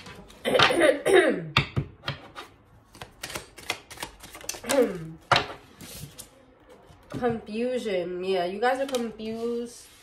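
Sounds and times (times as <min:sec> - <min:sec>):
cards being shuffled: 0:02.9 - 0:06.3, 0:08.7 - 0:10.0.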